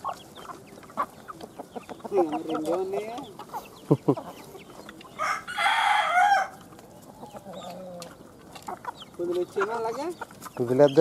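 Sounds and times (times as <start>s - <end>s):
chickens clucking: 0.0s - 11.0s
chickens pecking on a dish: 0.0s - 11.0s
rooster crowing: 5.2s - 6.6s.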